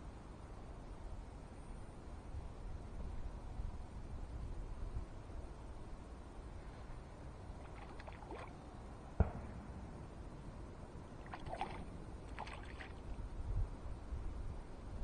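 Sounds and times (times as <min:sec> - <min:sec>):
light splashes on water: 0:07.6 - 0:08.6, 0:11.2 - 0:13.2.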